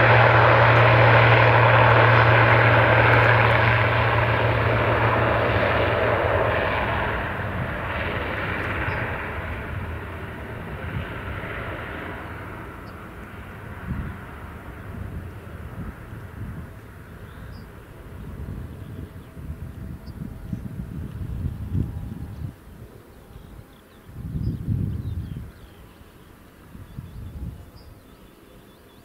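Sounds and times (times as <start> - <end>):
turboprop engines droning: 0.0 - 29.0.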